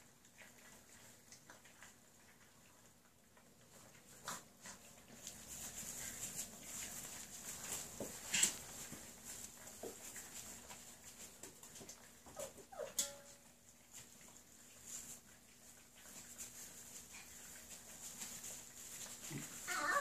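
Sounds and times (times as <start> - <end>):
puppies eating from metal bowl: 0.0 - 20.0
puppy whimpers: 12.2 - 13.2, 19.6 - 20.0.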